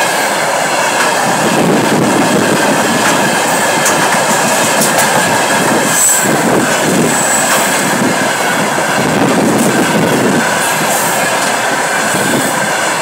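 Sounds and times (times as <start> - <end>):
train wheels rumbling on rails: 0.0 - 13.0
high-pitched wheel squeals: 5.8 - 7.9.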